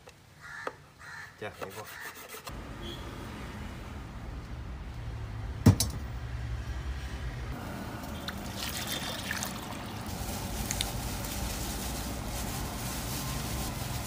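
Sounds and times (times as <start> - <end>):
water pouring into metal pot: 8.2 - 10.1.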